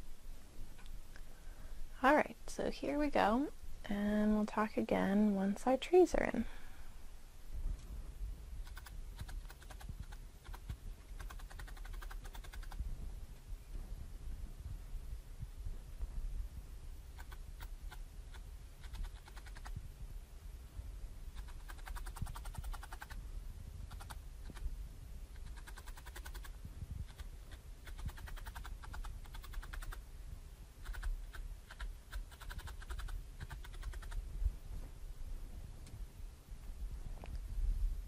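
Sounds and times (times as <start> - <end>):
felting needle ticking: 8.6 - 12.8, 17.1 - 19.8, 21.3 - 23.2, 23.9 - 24.7, 25.4 - 30.0, 30.8 - 34.2.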